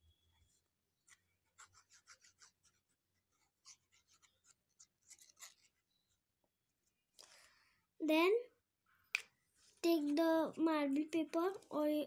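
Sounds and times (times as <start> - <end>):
glue nozzle rubbing on paper: 1.1 - 5.7.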